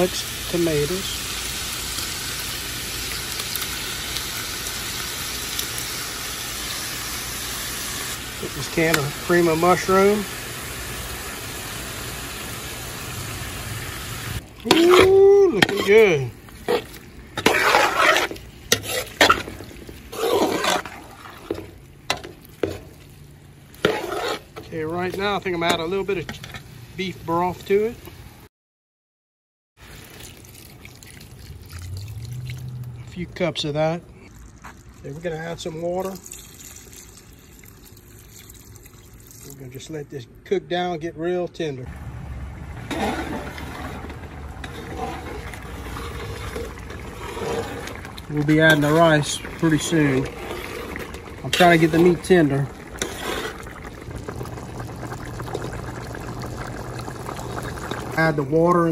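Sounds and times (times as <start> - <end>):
burner hiss: 0.0 - 14.4
propane burner rumble: 0.0 - 28.4, 29.8 - 58.9
spoon stirring thick wet mixture: 14.5 - 26.5, 30.0 - 33.6, 42.7 - 58.9
spoon scraping metal pot: 14.6 - 23.0, 23.8 - 26.6, 42.8 - 53.8.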